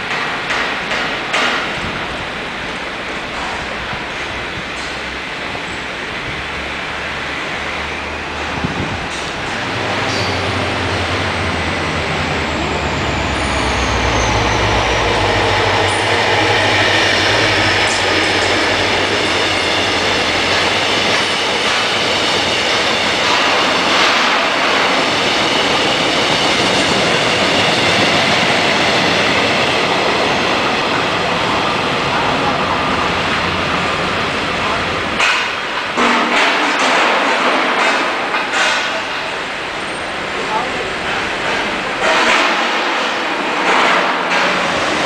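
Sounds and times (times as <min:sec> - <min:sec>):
rail clicks: 0:00.0 - 0:05.9, 0:08.4 - 0:45.0
train wheels rushing on rails: 0:00.0 - 0:45.0
locomotive rumble and falling tone: 0:08.2 - 0:24.9.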